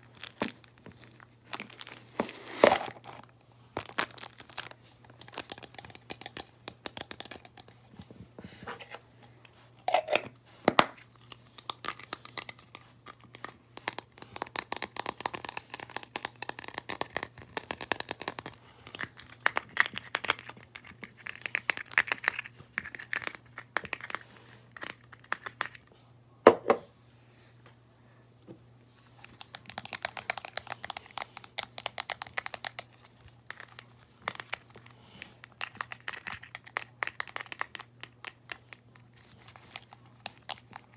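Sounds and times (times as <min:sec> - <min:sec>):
plastic crinkling and crackling: 0:00.0 - 0:07.5.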